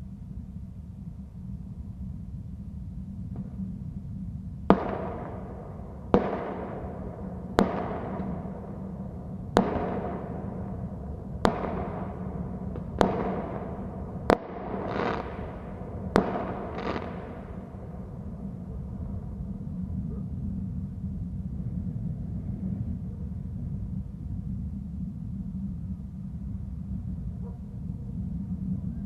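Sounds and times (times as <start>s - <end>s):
low background noise: 0.0s - 29.0s
fireworks bangs with echoing rumble: 4.7s - 18.4s.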